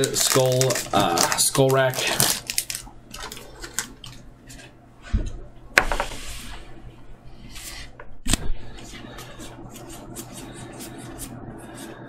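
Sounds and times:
trading cards rustling: 0.0 - 4.2.

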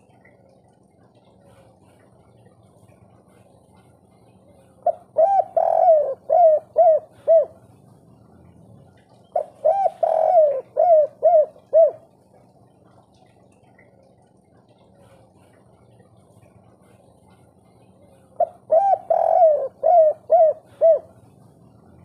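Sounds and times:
dove cooing: 4.8 - 8.2, 9.2 - 12.5, 18.1 - 22.0.

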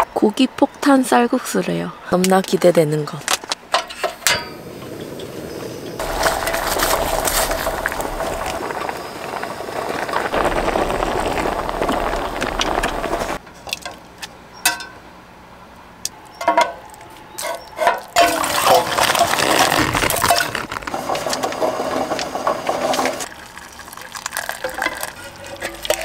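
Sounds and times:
water pouring into a metal pot: 6.0 - 9.4, 18.2 - 26.0.

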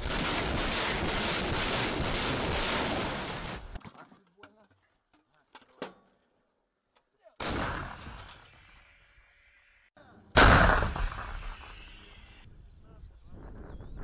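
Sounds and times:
heavy blasts with rolling echo: 0.0 - 3.7, 7.4 - 8.9, 10.4 - 12.5.

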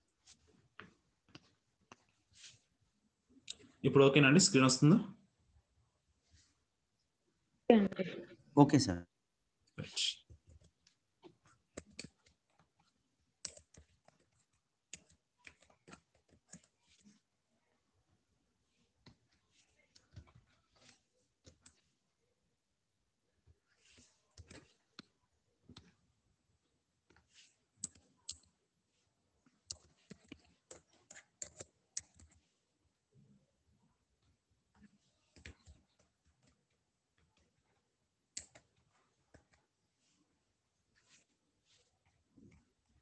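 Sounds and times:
keyboard typing: 10.3 - 17.2, 27.1 - 28.6, 29.6 - 32.5, 38.3 - 39.6.

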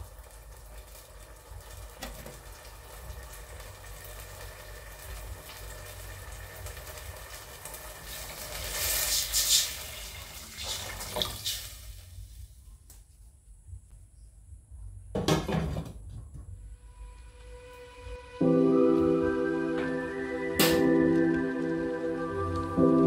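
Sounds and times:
water pouring into saucepan: 0.0 - 12.4.

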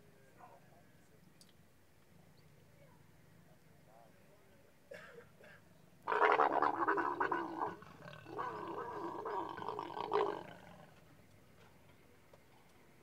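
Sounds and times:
leopards growling: 6.1 - 11.0.

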